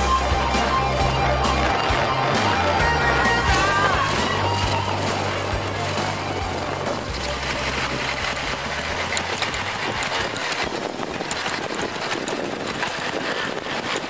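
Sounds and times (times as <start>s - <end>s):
motorcycle engine running: 0.0s - 14.0s
road noise: 0.0s - 14.0s
wind noise on microphone: 0.0s - 14.0s.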